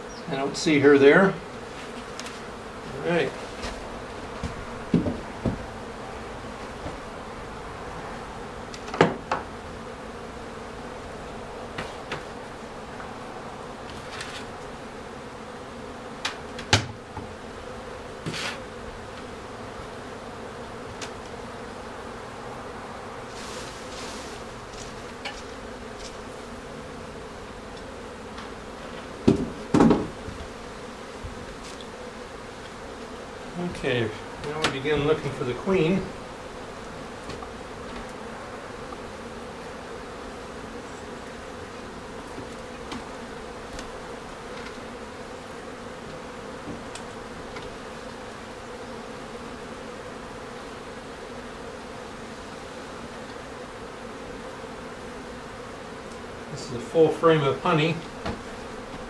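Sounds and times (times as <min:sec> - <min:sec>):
bees humming: 0:00.0 - 0:59.0
wooden knocks: 0:04.4 - 0:05.7, 0:29.2 - 0:30.2.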